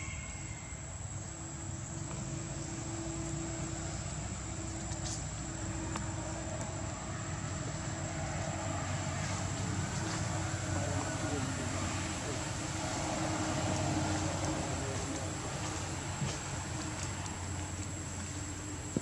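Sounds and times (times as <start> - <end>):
thin high whine: 0.0 - 4.7.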